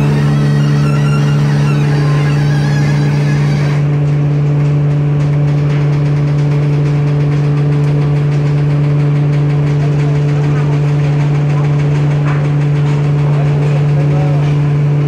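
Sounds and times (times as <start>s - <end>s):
hydraulic machine hum: 0.0s - 15.0s.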